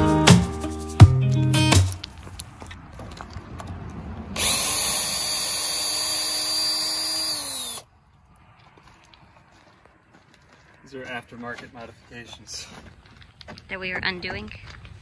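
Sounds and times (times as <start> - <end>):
cordless drill whining: 4.4 - 7.9.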